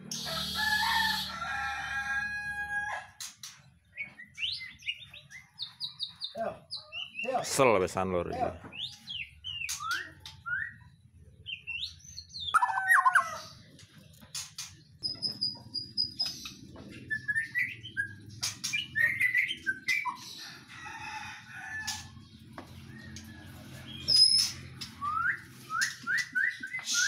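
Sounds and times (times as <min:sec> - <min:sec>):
songbirds chirping and whistling: 0:00.0 - 0:27.0
wings fluttering against cages: 0:13.6 - 0:27.0.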